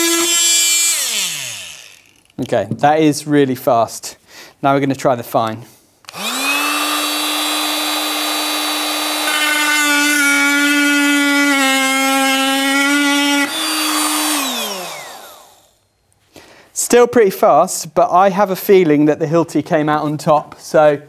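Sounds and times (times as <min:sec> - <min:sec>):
oscillating multi-tool buzzing: 0:00.0 - 0:02.3, 0:06.1 - 0:15.8.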